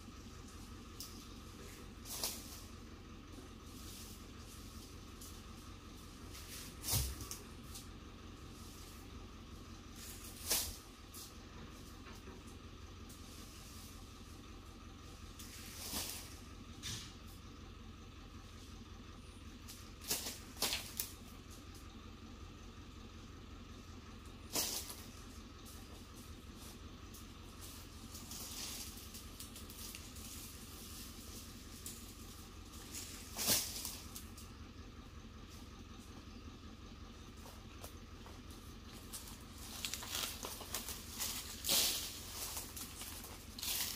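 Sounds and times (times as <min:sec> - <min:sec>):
palm fronds swishing: 0:01.0 - 0:09.1, 0:09.9 - 0:11.9, 0:15.4 - 0:16.5, 0:20.0 - 0:21.1, 0:24.5 - 0:34.4, 0:38.9 - 0:43.9.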